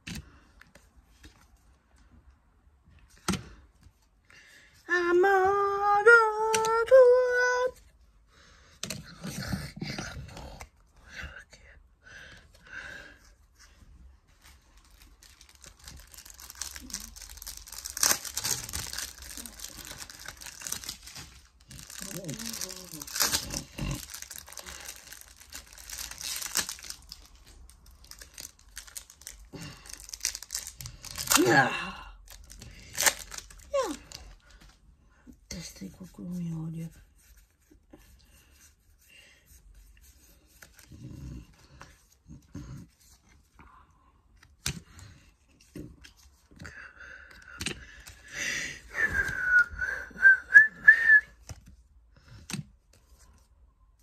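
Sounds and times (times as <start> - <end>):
foil wrapper crinkling: 14.6 - 31.6, 32.3 - 34.6
person whistling: 48.9 - 51.4.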